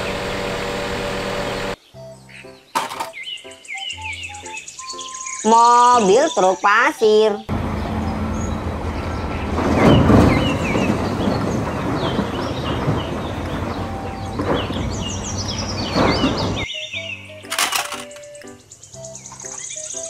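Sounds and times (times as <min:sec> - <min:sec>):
diesel engine running: 0:00.0 - 0:01.8, 0:07.5 - 0:16.6
birds chirping: 0:00.0 - 0:20.0.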